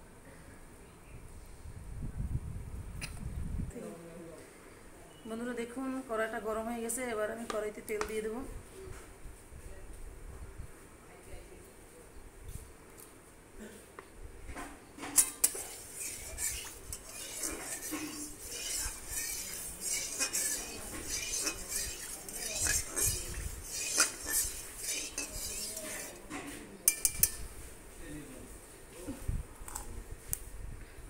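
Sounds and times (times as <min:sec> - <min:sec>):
metal spatula scraping wok: 0:15.0 - 0:27.8.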